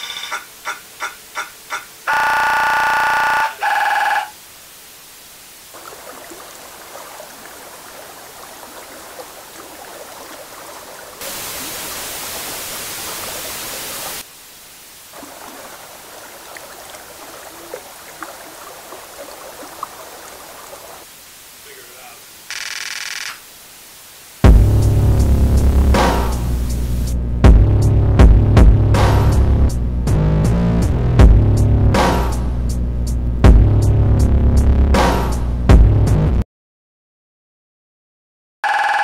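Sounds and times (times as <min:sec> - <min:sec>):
low crackling hiss: 0:00.1 - 0:27.4
loud electronic tone: 0:01.7 - 0:04.3
loud white-noise static: 0:11.2 - 0:15.2, 0:21.0 - 0:27.3.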